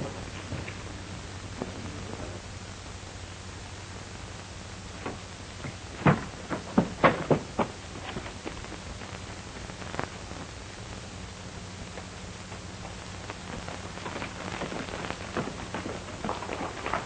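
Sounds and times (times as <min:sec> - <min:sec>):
film soundtrack hiss and hum: 0:00.0 - 0:17.0
sharp knocks and thuds: 0:05.0 - 0:08.4.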